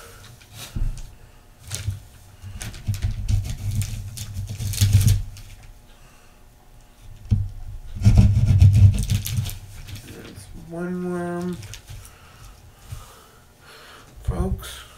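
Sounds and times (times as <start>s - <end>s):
blade scraping plastic on paper: 1.7s - 5.6s, 8.0s - 10.3s.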